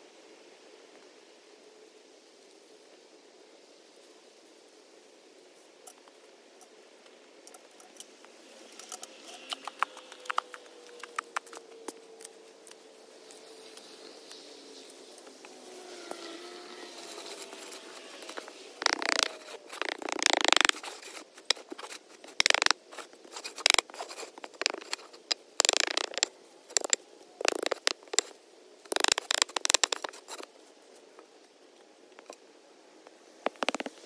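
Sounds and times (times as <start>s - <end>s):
wooden board scraping sand: 16.1s - 30.5s, 33.4s - 34.0s.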